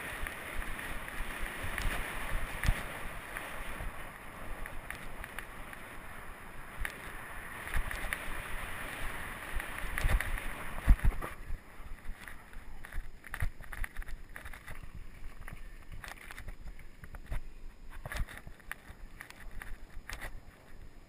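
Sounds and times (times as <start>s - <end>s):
bike rattling and clicking: 0.0s - 21.0s
wind rushing over microphone: 0.0s - 21.0s
tyre rumble on dirt: 7.0s - 20.8s.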